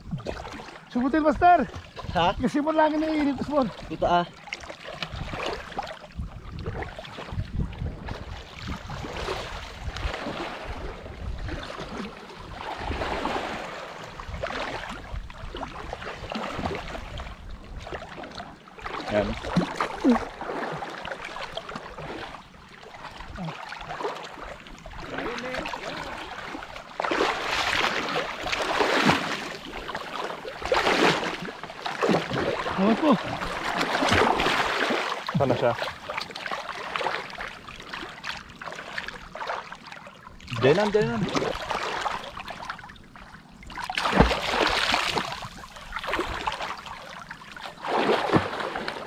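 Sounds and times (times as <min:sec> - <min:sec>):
water splashing against boat: 0:00.0 - 0:49.0
wind buffeting microphone: 0:05.1 - 0:13.4.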